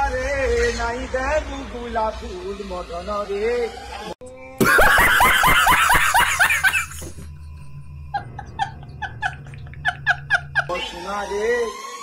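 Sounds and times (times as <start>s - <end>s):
person laughing loudly: 4.6s - 7.3s, 8.1s - 10.8s.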